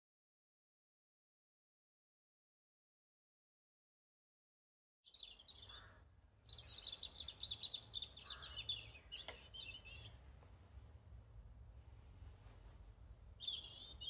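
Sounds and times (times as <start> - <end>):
songbird twittering: 5.1 - 10.2, 12.2 - 14.0
low steady rumble: 7.8 - 14.0.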